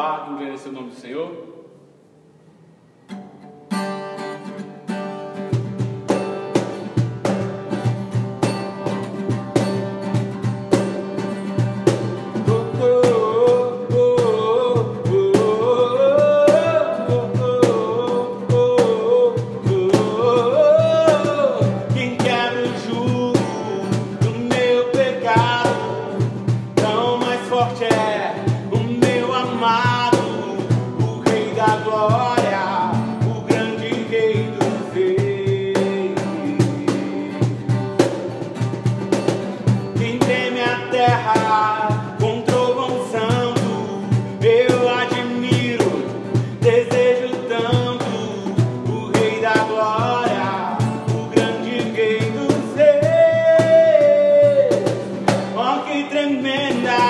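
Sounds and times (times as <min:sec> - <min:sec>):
band with bass and drums: 0:05.3 - 0:13.4, 0:18.5 - 0:55.7
person singing: 0:11.9 - 0:38.1, 0:39.9 - 0:57.0.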